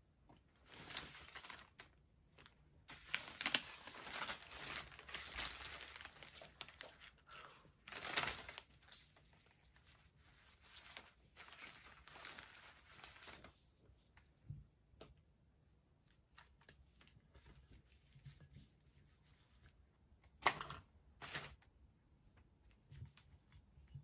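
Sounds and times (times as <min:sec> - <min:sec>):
flower stems and paper rustling: 0:00.5 - 0:13.6.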